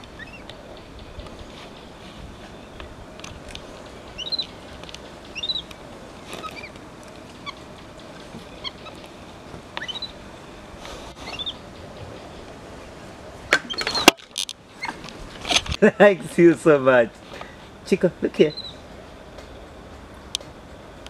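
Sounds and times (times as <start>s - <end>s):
high-pitched chirping calls: 0.1s - 1.2s, 4.0s - 6.8s, 9.8s - 10.2s, 11.1s - 11.8s, 18.4s - 18.8s.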